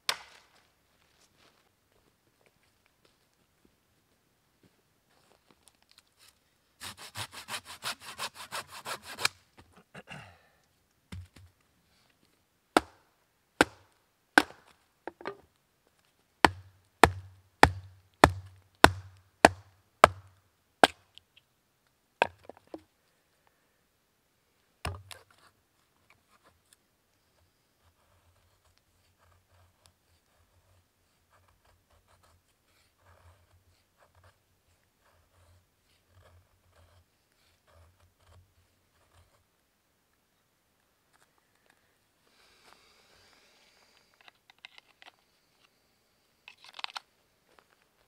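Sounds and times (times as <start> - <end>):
machete chopping wood: 0.0 - 0.4, 12.8 - 13.0, 13.6 - 15.4, 16.4 - 21.0.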